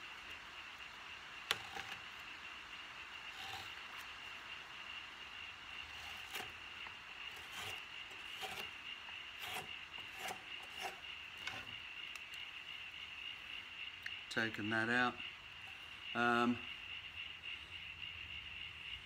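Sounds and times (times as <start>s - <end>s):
faint high whine: 0.0s - 19.0s
gouge scraping wood: 1.5s - 2.1s, 3.3s - 4.1s, 5.8s - 11.8s.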